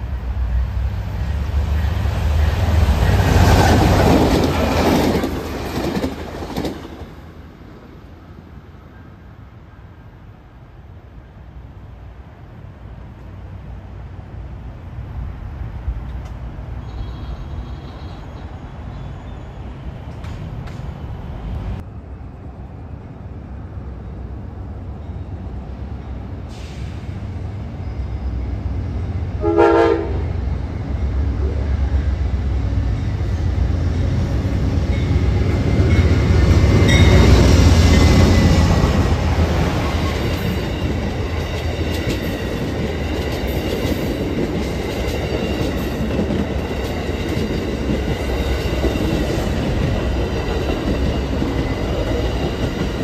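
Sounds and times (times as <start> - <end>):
train horn blast: 16.8 - 18.3, 29.4 - 30.4
train wheels clattering: 35.0 - 53.0.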